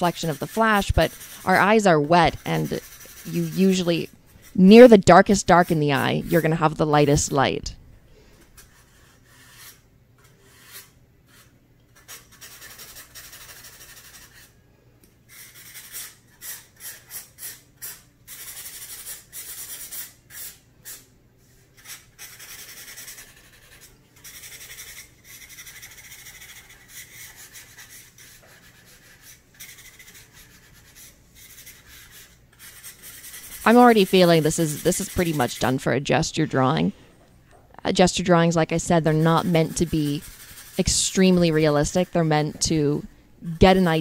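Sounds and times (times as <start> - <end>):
pencil scratching on paper: 0.0 - 7.8, 8.4 - 14.6, 15.3 - 21.1, 21.8 - 36.9, 38.0 - 44.0.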